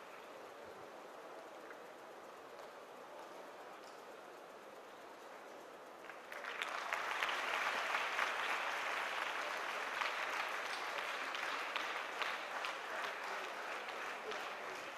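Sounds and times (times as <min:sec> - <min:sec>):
audience applauding: 0:06.0 - 0:14.9.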